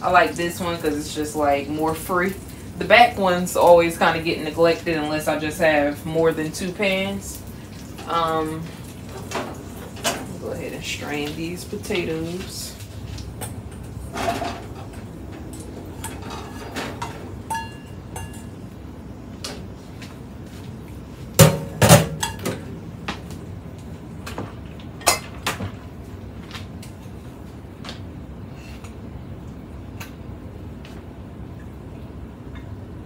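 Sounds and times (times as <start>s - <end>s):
spoon scraping and knocking pans: 16.0s - 18.6s.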